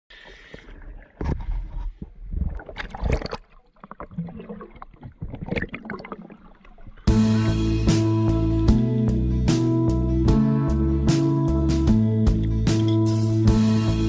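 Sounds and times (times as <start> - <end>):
muffled underwater bubbling: 0.1 - 7.1
water splashing and sloshing: 0.1 - 7.2.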